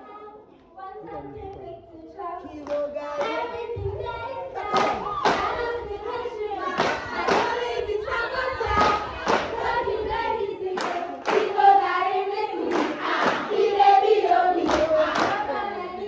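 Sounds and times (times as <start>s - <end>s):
girl singing into a microphone: 0.0s - 9.2s
voices singing along: 0.0s - 16.0s
hand claps: 4.6s - 5.6s, 6.7s - 7.8s, 8.7s - 9.6s, 10.8s - 11.6s, 12.6s - 13.6s, 14.6s - 15.4s.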